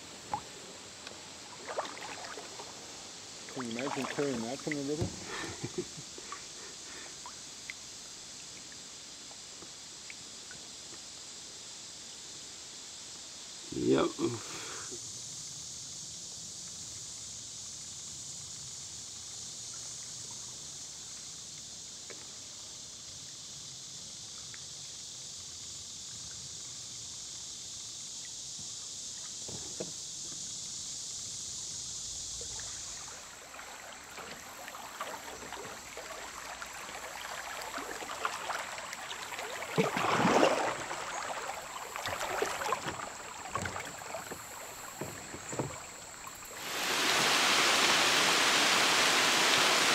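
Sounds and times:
paddle splashes: 0.0 - 7.8, 32.2 - 49.9
water rippling around kayak: 0.0 - 11.2, 24.2 - 49.9.

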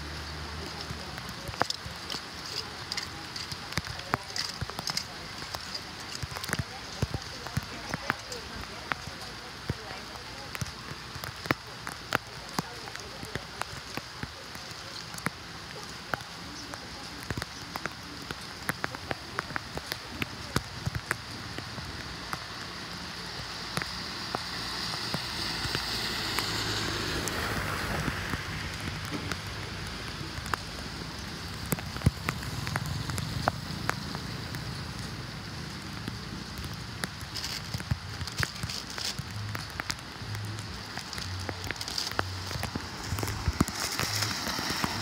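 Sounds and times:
water dripping: 0.0 - 45.0
water rushing: 0.0 - 45.0.

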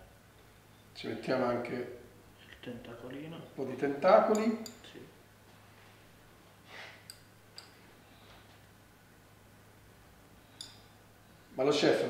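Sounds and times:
steady low hum: 0.0 - 12.0
faint breath: 8.0 - 8.6.

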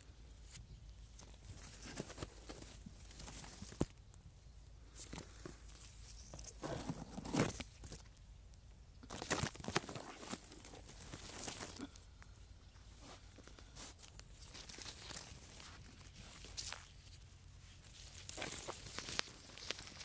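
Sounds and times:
leaves rustling against camera: 0.0 - 8.3, 8.9 - 20.0.

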